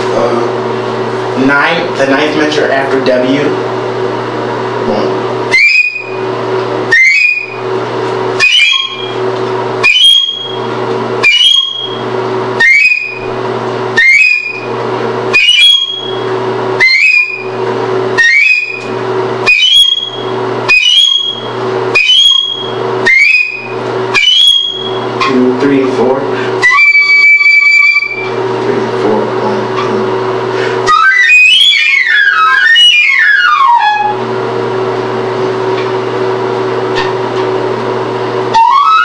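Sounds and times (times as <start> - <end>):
steady low hum: 0.0 - 39.0
flute high sliding note: 5.5 - 6.3, 6.9 - 7.7, 8.3 - 25.6, 26.5 - 28.4, 30.7 - 34.3, 36.9 - 37.2, 38.4 - 39.0.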